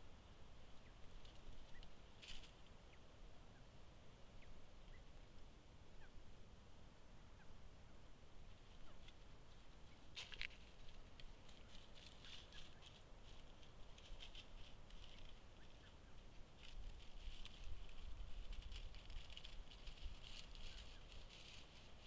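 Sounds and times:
crackling rustles of dry leaf litter: 0.0s - 3.0s, 8.4s - 22.0s.

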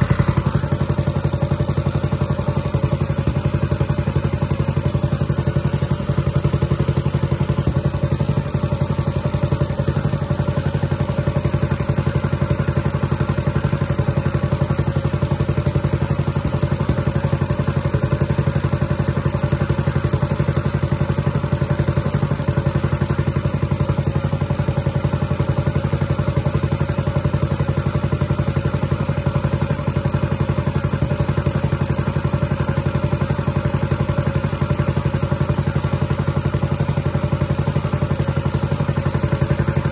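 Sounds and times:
small engine running steadily: 0.0s - 39.9s.

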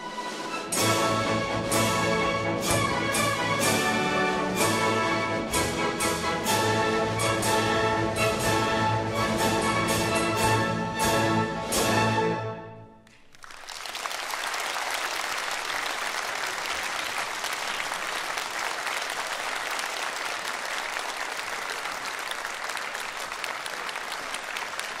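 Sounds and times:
audience applause: 13.1s - 25.0s.

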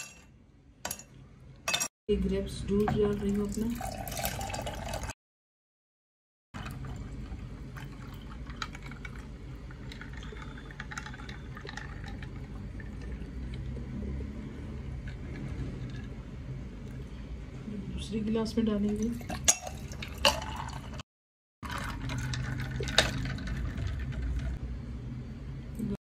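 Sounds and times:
juice pouring into glass: 3.5s - 5.2s, 6.6s - 13.9s, 19.1s - 21.0s, 21.6s - 24.6s.

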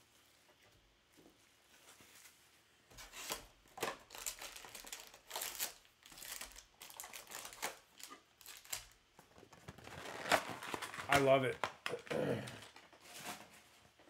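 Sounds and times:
plastic wrappers crinkling: 3.1s - 12.9s.

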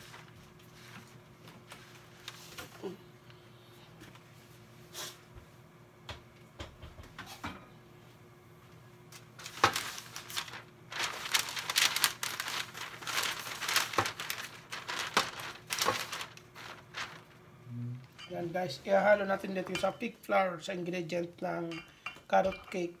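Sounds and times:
paper crinkling and rustling: 0.0s - 2.9s, 9.1s - 18.3s.

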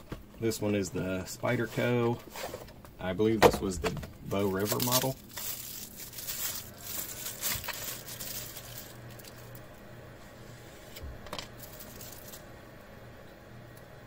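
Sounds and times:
plastic packaging crinkling: 4.2s - 9.8s, 11.4s - 12.5s.

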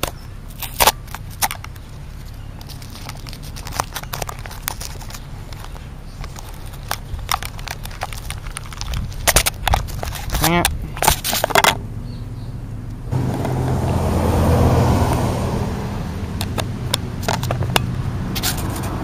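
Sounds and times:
plastic snack bag crackling: 2.2s - 11.6s.

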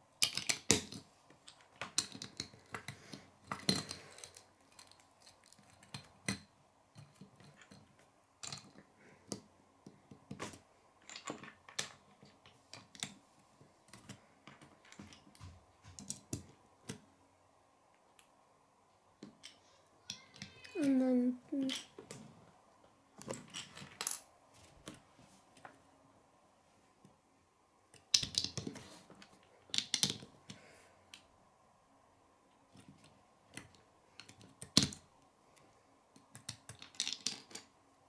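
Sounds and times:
plastic bricks clicking: 0.2s - 10.4s, 28.0s - 28.8s, 29.6s - 30.3s, 36.2s - 37.7s.

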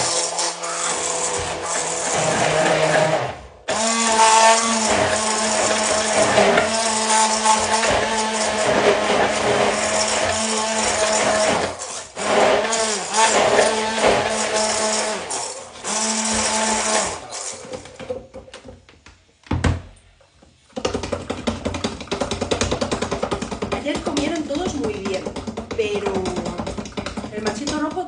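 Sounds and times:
immersion blender motor hum: 0.0s - 18.0s
tapping and scraping in jug: 20.5s - 28.0s.

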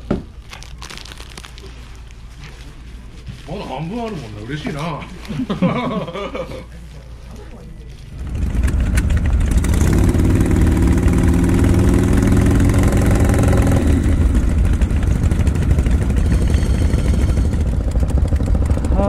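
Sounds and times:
motorcycles idling: 8.0s - 19.0s
steady engine note: 8.1s - 19.0s.

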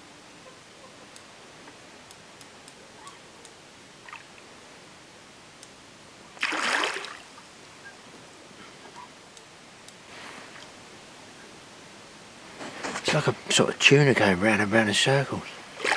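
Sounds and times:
faint background noise: 0.0s - 15.9s
fish splashing: 6.4s - 7.4s.

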